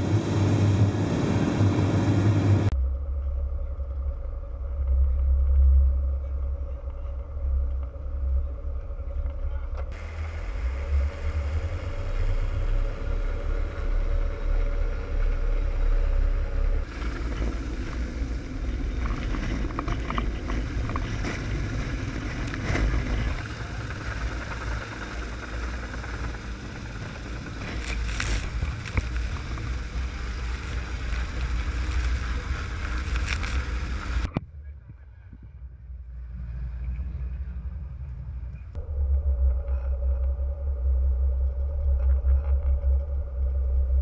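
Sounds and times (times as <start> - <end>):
boat engine running: 0.0 - 35.0
wind rumble on microphone: 0.0 - 44.0
helicopter rotor wash: 9.9 - 34.3.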